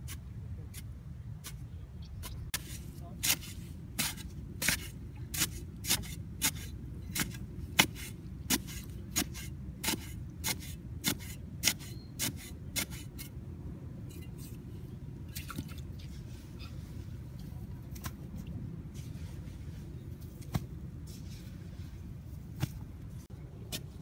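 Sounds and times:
digging tool chopping soil: 0:02.5 - 0:13.0.

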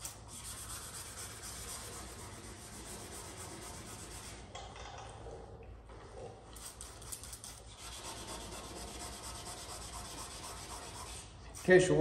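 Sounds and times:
sandpaper scraping metal panel: 0:00.0 - 0:04.4, 0:07.7 - 0:11.8.

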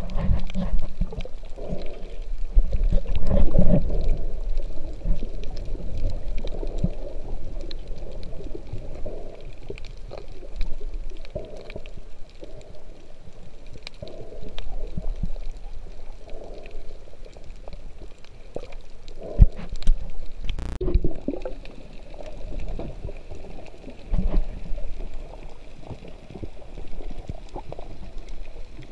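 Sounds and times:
underwater rumble of moving water: 0:00.0 - 0:28.9
sharp clicks: 0:20.4 - 0:20.8.

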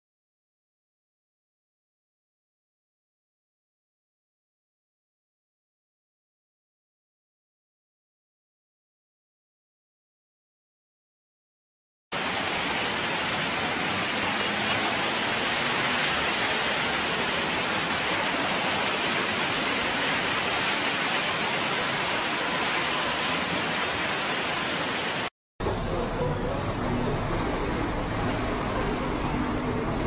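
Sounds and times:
floodwater rushing: 0:12.2 - 0:25.3.

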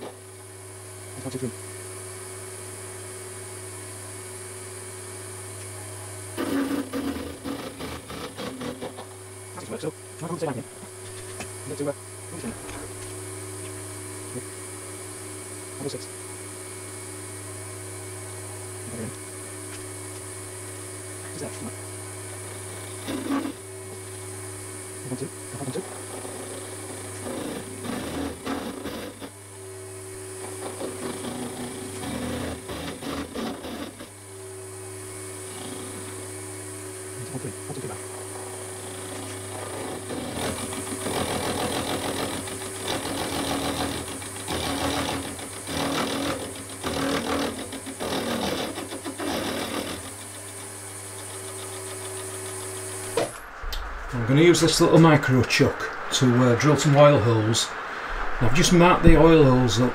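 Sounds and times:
milling machine motor hum: 0:00.0 - 0:56.6
cutter chatter and scraping: 0:06.4 - 0:12.9, 0:22.8 - 0:23.6, 0:25.1 - 0:29.4, 0:30.5 - 0:34.1.

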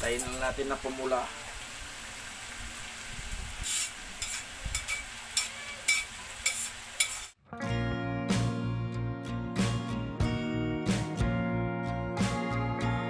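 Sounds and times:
meat sizzling in a wok: 0:00.0 - 0:07.4
background music: 0:07.4 - 0:13.0.

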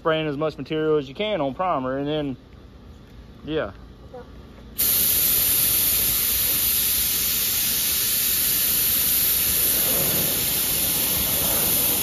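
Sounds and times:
spray gun hissing: 0:04.8 - 0:12.0.

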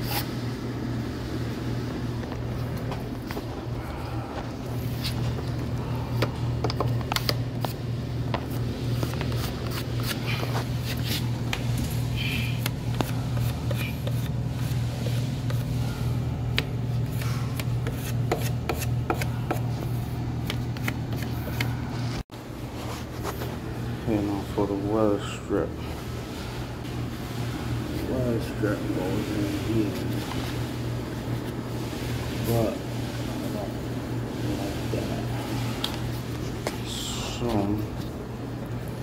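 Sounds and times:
steady low hum: 0:00.0 - 0:39.0
clicks taps and scrapes: 0:06.2 - 0:11.7.

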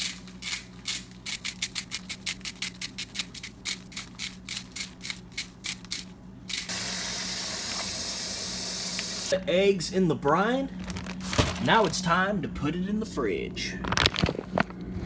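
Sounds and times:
salt grinder crunching: 0:00.0 - 0:06.8.

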